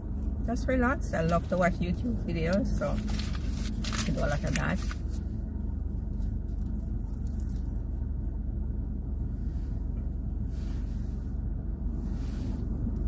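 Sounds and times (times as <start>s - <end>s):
car engine idling: 0.0s - 13.0s
crust and paper crackling: 2.5s - 5.3s, 6.0s - 7.9s.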